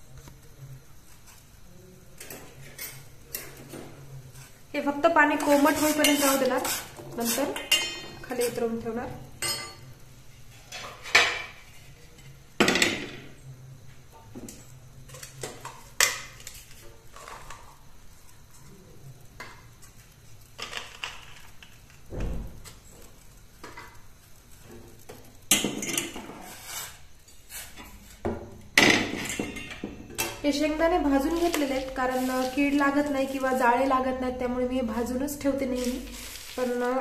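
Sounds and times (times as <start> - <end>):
steel cookware clanking: 5.4 - 8.6, 9.4 - 10.0, 28.8 - 30.4.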